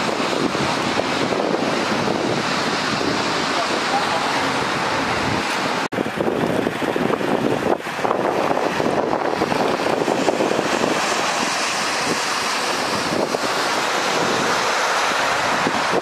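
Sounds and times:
heavy rain: 0.0 - 16.0
wind buffeting the microphone: 0.0 - 16.0.

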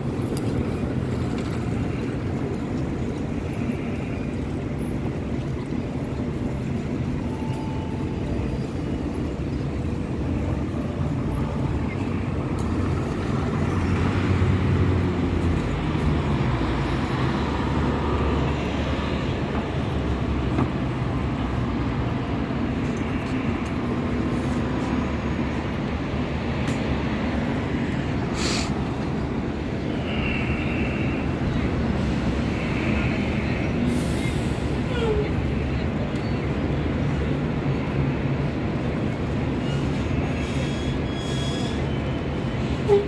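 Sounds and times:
buses driving past: 0.0 - 43.0
traffic: 0.0 - 43.0
short hiss: 28.3 - 28.8.

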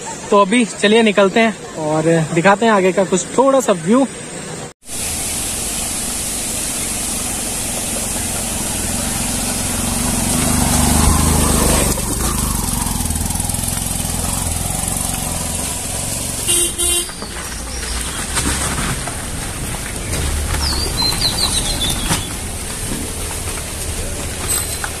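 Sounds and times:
motorcycle engine running: 6.2 - 18.3, 19.2 - 25.0
double horn honk: 16.2 - 17.3.

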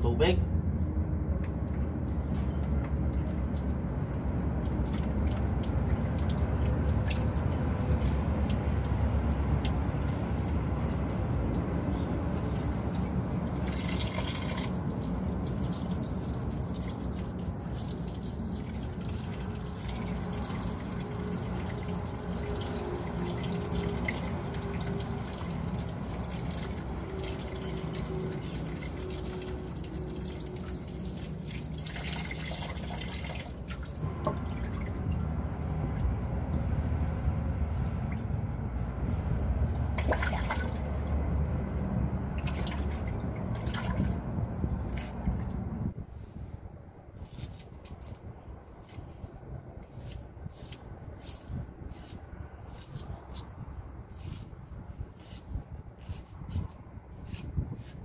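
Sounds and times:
water trickling onto hands: 3.0 - 37.4, 39.7 - 45.8.

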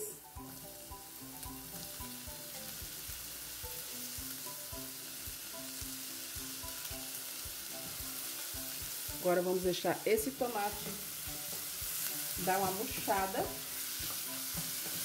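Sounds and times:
onion sizzling in oil: 0.0 - 15.0
soft background music: 0.0 - 15.0.

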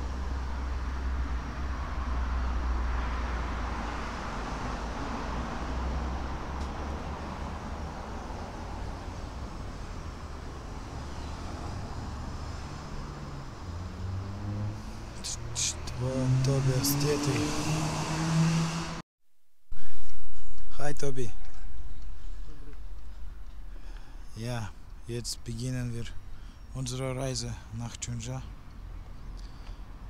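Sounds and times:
vehicle passing: 0.0 - 19.0.

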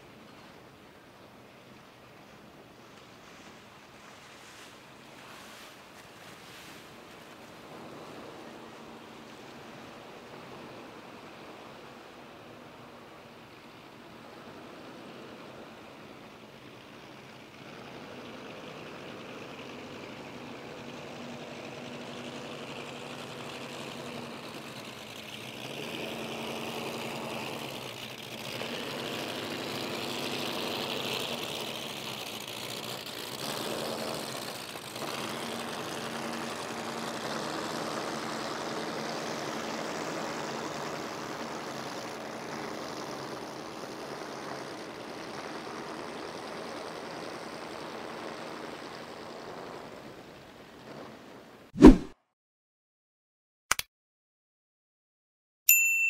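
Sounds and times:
boat engines running: 0.0 - 51.6.

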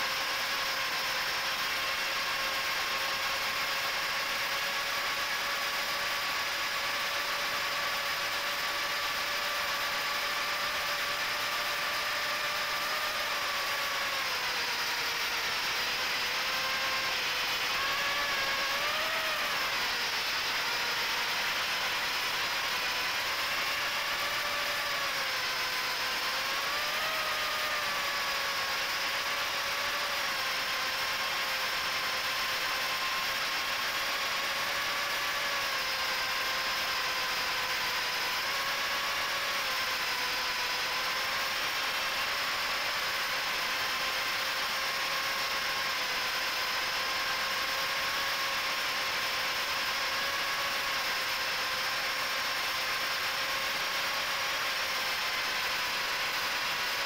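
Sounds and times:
drone motors whining: 0.0 - 57.0.

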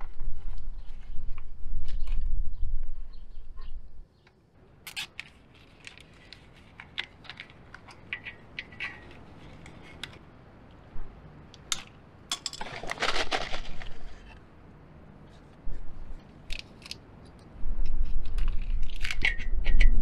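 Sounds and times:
cables clicking and rattling: 4.9 - 10.8
packet crinkling: 12.6 - 14.4.

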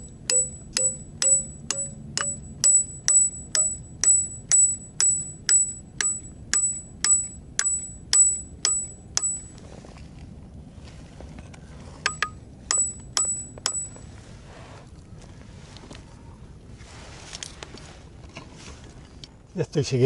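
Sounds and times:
hammer striking metal piton: 0.0 - 9.5, 12.0 - 14.0.

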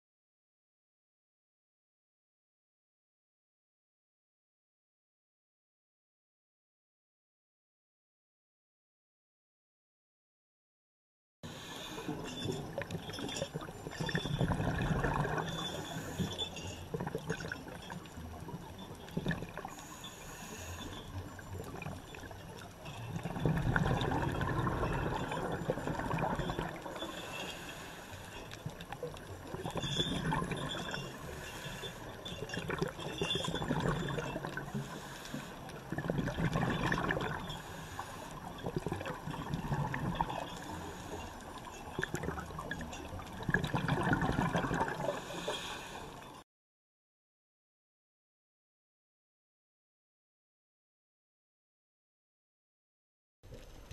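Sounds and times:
steady watery hiss: 11.5 - 43.5, 44.2 - 46.4
underwater regulator bubbling: 12.1 - 20.0, 21.3 - 28.0, 28.6 - 41.1, 41.8 - 45.9.

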